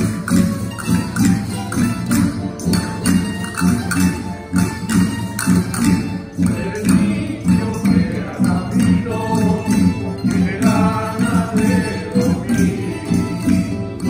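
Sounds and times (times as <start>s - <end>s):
plucked string ensemble strumming: 0.0s - 14.0s
people singing: 6.0s - 14.0s.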